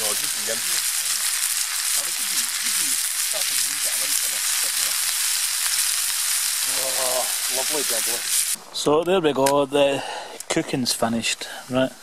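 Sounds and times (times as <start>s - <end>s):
vegetables and sausage sizzling in pan: 0.0s - 8.6s.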